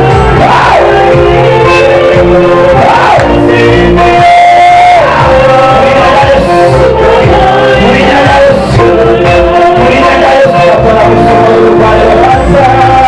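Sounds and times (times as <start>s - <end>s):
gospel music with singing: 0.0s - 13.0s.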